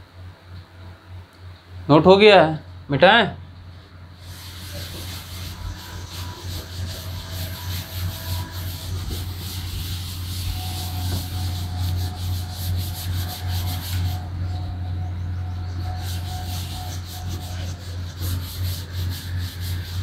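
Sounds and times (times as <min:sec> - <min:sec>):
cloth rubbing on chalkboard: 0:04.2 - 0:14.6, 0:15.8 - 0:20.0.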